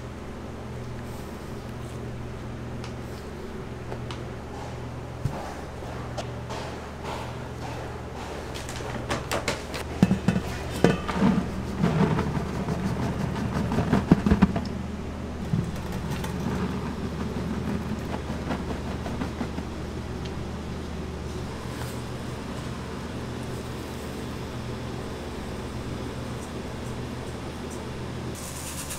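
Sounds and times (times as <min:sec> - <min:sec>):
kitchen machinery humming: 0:00.0 - 0:28.9
knocks and clattering: 0:05.2 - 0:14.8, 0:15.4 - 0:20.4.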